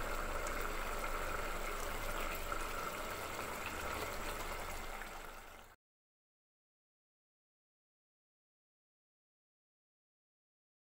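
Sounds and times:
curry simmering in a pot: 0:00.0 - 0:05.8.

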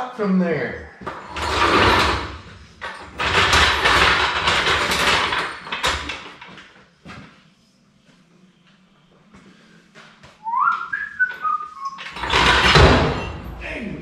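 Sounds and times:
tool scraping on concrete floor: 0:01.0 - 0:05.6.

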